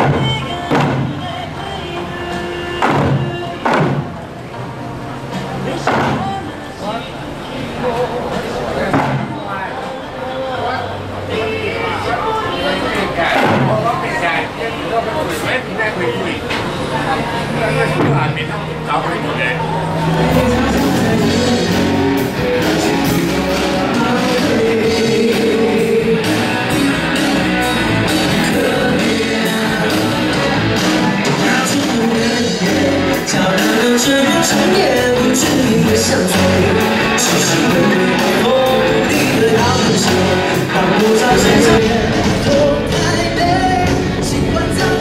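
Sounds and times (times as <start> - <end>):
steady drum beat: 41.2 - 45.0.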